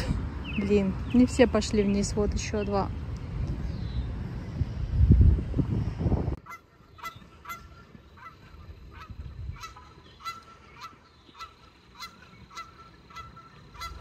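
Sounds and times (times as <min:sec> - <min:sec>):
low rumble on microphone: 0:00.0 - 0:10.9
goose honking: 0:06.4 - 0:14.0.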